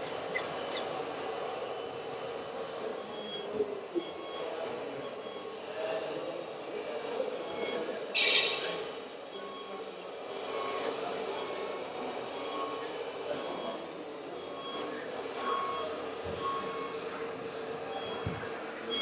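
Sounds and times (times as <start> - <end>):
faint voices: 0.0 - 19.0
faint high beeps: 7.4 - 11.7.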